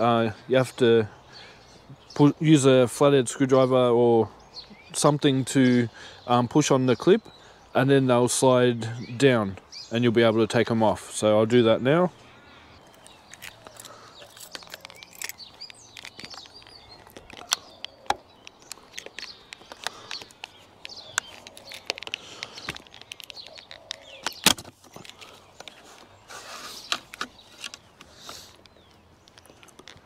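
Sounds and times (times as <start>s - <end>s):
faint birds chirping: 0.0s - 30.0s.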